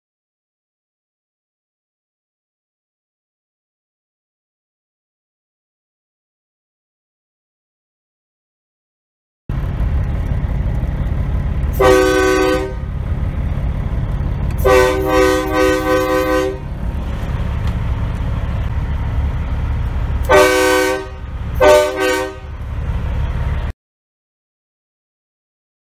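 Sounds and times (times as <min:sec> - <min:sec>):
diesel engine idling: 0:09.5 - 0:23.7
truck air horn blasts: 0:11.7 - 0:12.9, 0:14.6 - 0:16.7, 0:20.2 - 0:22.6.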